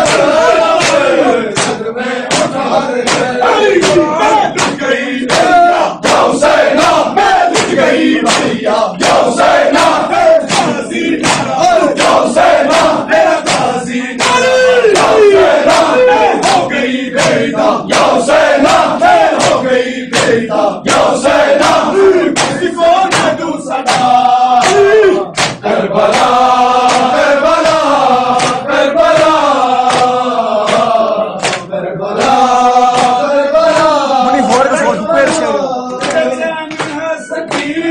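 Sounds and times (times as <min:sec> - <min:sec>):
men chanting a lament: 0:00.0 - 0:37.9
hand slaps on chest: 0:01.6 - 0:04.0, 0:04.6 - 0:06.3, 0:07.5 - 0:09.2, 0:09.8 - 0:15.1, 0:18.7 - 0:21.1, 0:22.4 - 0:27.8, 0:28.4 - 0:34.7.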